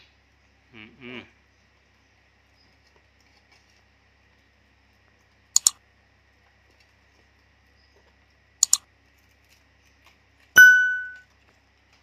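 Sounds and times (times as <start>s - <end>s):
faint low hum: 0.0s - 12.0s
mouse double click: 5.6s - 5.8s, 8.6s - 8.8s.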